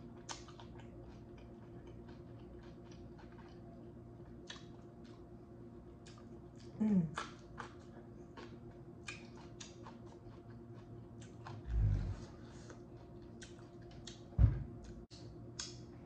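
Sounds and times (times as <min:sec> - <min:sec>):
person chewing: 0:00.0 - 0:05.3, 0:06.0 - 0:15.8
wet clicks and lip smacks: 0:04.4 - 0:05.2, 0:08.4 - 0:10.6, 0:13.4 - 0:14.3, 0:15.1 - 0:15.8
low thud: 0:14.4 - 0:14.8.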